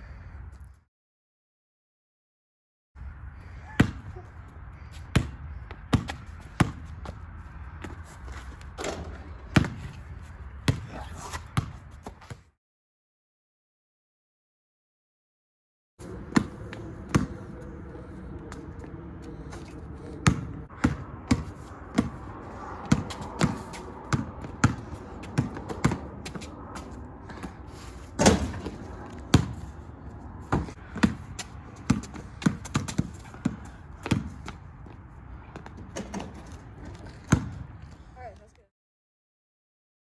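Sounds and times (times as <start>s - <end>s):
basketball bouncing on asphalt: 3.6s - 12.5s, 16.0s - 38.6s.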